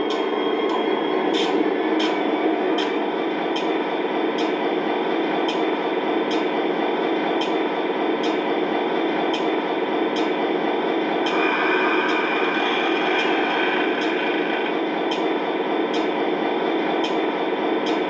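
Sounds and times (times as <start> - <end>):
rail joint clicks: 0.0 - 18.0
model train wheels rumbling: 11.0 - 16.2
high steady tone: 11.2 - 16.1.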